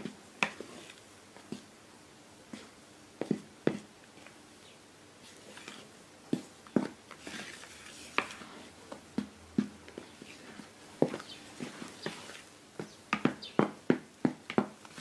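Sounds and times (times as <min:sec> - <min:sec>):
soft wet batter folding: 0:05.2 - 0:12.5.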